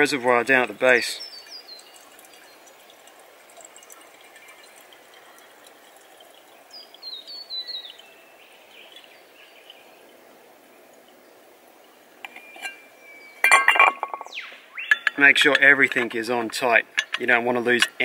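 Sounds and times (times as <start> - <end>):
water trickling into reservoir: 0.0 - 18.0
bird calling falling notes: 12.4 - 15.2.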